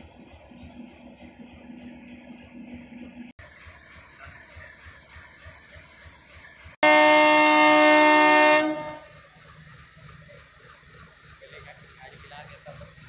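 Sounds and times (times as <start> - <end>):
diesel engine rumble: 0.0 - 13.0
locomotive air horn blast: 6.8 - 9.1.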